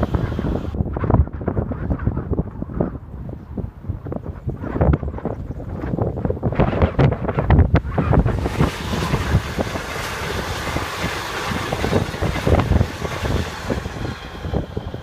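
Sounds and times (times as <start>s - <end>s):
train wheels rushing on rail: 0.0s - 0.8s, 7.8s - 15.0s
wind buffeting microphone: 0.0s - 15.0s
wheel clacks over rail joints: 8.3s - 15.0s.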